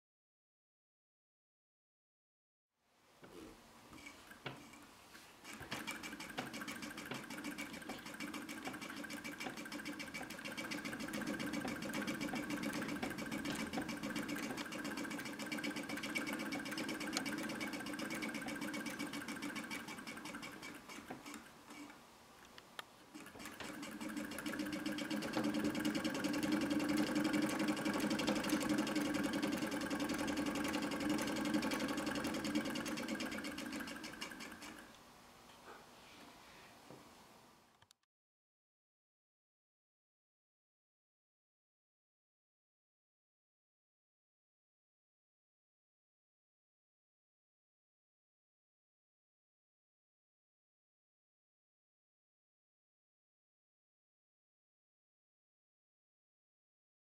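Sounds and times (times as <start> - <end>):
treadle sewing machine clattering: 5.5 - 21.9, 23.2 - 34.8.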